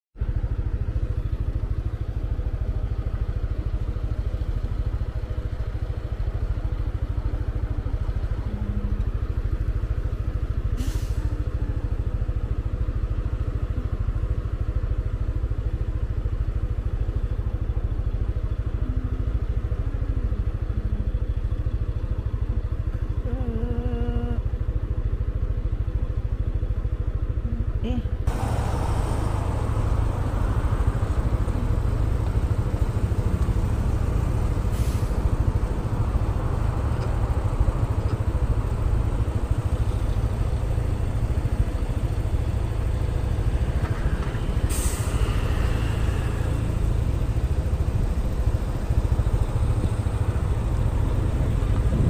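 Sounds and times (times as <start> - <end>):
scooter engine idling: 28.0 - 34.7, 35.4 - 43.7.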